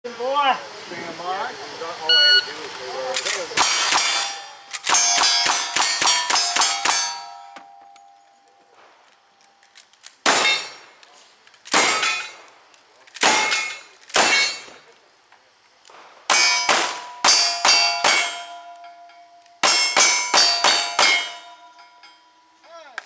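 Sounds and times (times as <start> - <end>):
steel target clanging: 3.2 - 8.8, 10.2 - 11.0, 11.7 - 12.5, 13.2 - 14.8, 16.3 - 22.8
rifle shots: 3.6 - 7.2, 10.2 - 10.9, 11.7 - 12.5, 13.2 - 14.8, 16.0 - 18.4.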